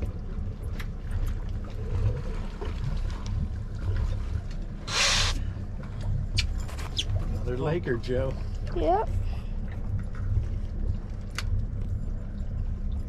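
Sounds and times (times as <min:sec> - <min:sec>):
boat motor rumbling: 0:00.0 - 0:13.0
wind over water: 0:00.0 - 0:13.0
short loud hissing rush: 0:04.9 - 0:05.4.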